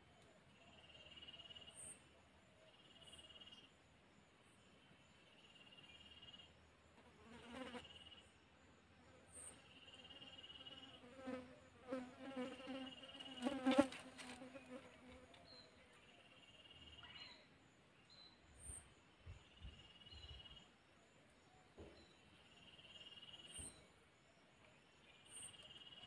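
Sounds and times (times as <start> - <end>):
buzzing insect droning: 7.0 - 8.2, 9.7 - 15.4.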